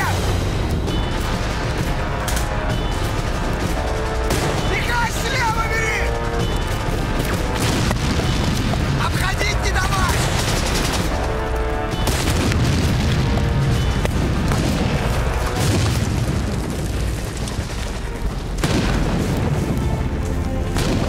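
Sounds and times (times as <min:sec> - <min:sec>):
deep rumbling: 0:00.0 - 0:21.0
film score music: 0:00.0 - 0:21.0
explosions: 0:07.0 - 0:11.2, 0:11.9 - 0:21.0.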